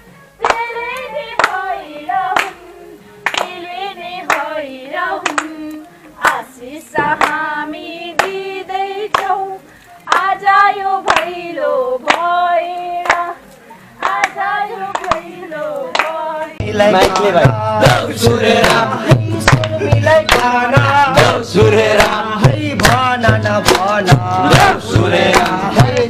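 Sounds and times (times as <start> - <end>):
hands clapping: 0.4 - 1.7, 2.3 - 2.6, 3.2 - 4.6, 5.2 - 6.4, 7.0 - 7.5, 8.2 - 9.4, 10.0 - 11.4, 12.0 - 13.4, 14.0 - 26.0
women singing folk song: 0.4 - 26.0.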